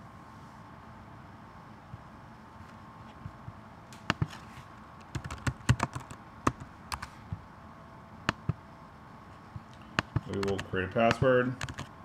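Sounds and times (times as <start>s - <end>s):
computer keyboard typing: 5.0s - 7.1s, 8.3s - 8.6s, 10.0s - 11.9s.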